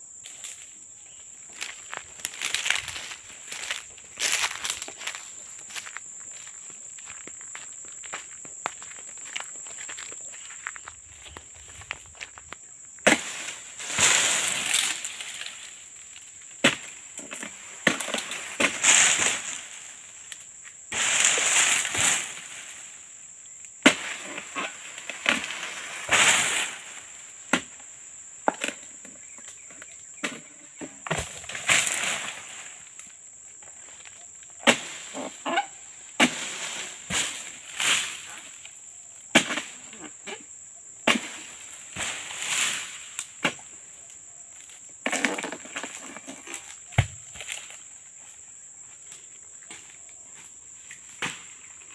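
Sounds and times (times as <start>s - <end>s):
insect drone: 0.0s - 51.9s
fronds rustling and swishing: 1.5s - 6.0s, 13.1s - 16.9s, 18.3s - 20.3s, 20.9s - 23.0s, 24.4s - 27.3s, 41.1s - 43.4s
sickle chopping: 13.0s - 15.0s, 16.6s - 19.2s, 23.8s - 24.2s, 27.5s - 27.8s, 34.6s - 35.0s, 36.2s - 38.0s, 39.3s - 39.8s, 41.0s - 41.4s, 46.9s - 47.6s.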